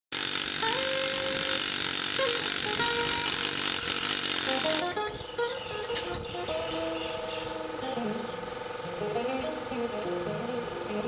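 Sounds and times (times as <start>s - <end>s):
pneumatic air hammer drilling rock: 0.1s - 5.0s.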